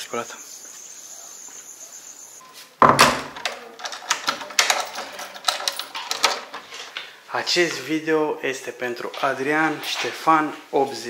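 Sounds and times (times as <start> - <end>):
crickets trilling: 0.0 - 2.5
sharp knocks and clatter: 2.8 - 6.7.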